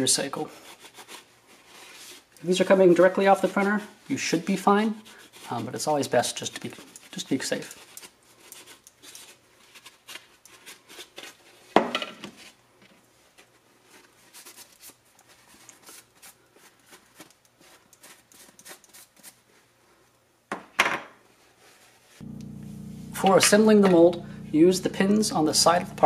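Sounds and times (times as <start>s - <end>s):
paper towel rubbing on plastic: 0.1s - 11.6s.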